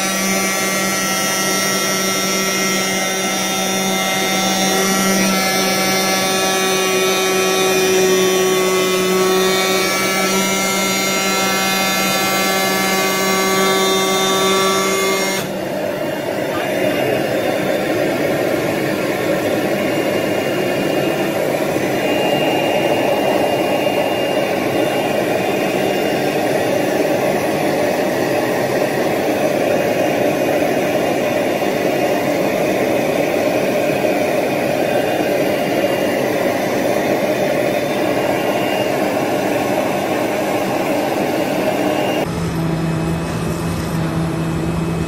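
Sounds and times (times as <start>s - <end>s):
cutting machine running: 0.0s - 45.0s
faint high whine: 0.0s - 45.0s.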